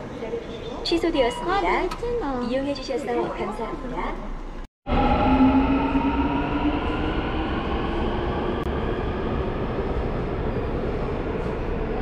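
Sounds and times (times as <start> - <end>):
subway train motor whine: 4.9 - 12.0
train rumble: 4.9 - 12.0.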